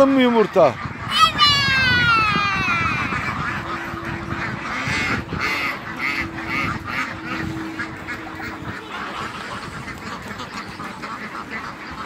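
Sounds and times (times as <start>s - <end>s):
ducks quacking: 0.0s - 12.0s
geese honking: 0.0s - 12.0s.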